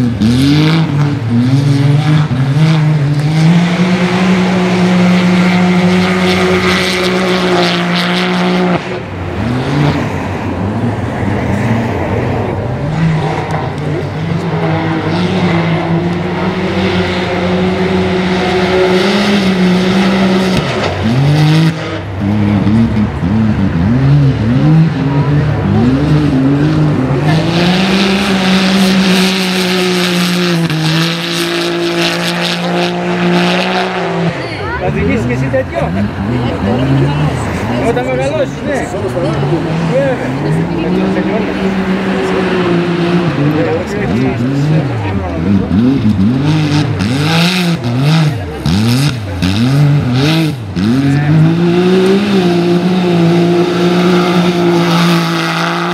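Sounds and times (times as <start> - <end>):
buggy engine revving high: 0.0 - 55.9.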